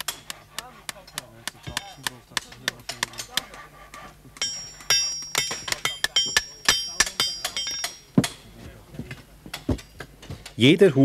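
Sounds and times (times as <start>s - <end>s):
hammer striking: 0.0s - 3.5s, 4.4s - 10.6s
hammer ringing on steel horseshoe: 4.4s - 8.6s.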